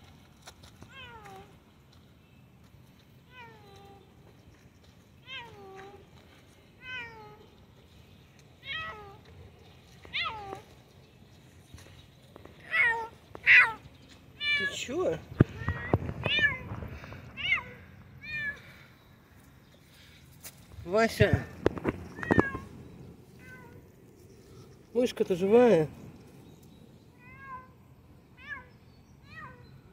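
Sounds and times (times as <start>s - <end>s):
cat meowing: 8.6s - 9.2s, 10.1s - 10.6s, 15.4s - 16.7s, 22.1s - 22.7s.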